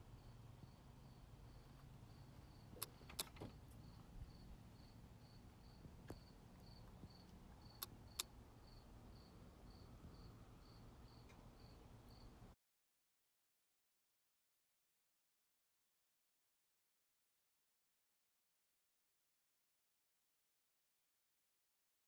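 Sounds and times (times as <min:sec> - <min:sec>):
crickets chirping: 0:00.2 - 0:12.4.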